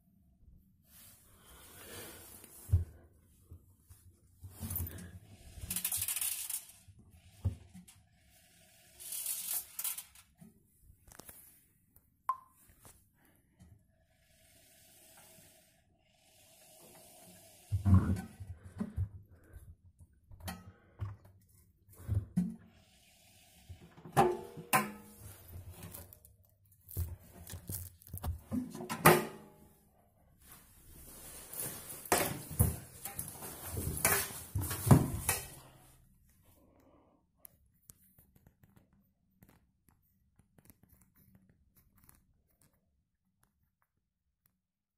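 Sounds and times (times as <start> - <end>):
fabric rustling: 30.4 - 35.2.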